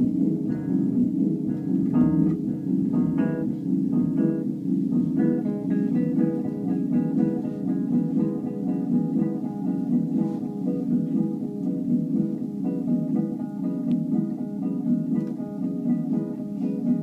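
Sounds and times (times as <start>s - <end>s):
electric guitar plucked: 0.0s - 17.0s
steady low drone: 0.0s - 17.0s.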